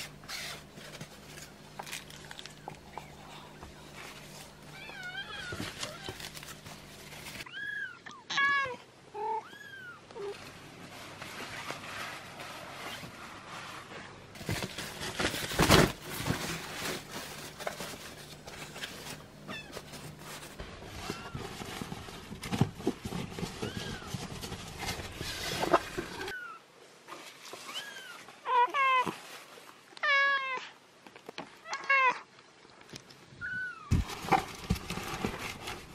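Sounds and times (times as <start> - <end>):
absorbent pad rustling: 10.3 - 26.4.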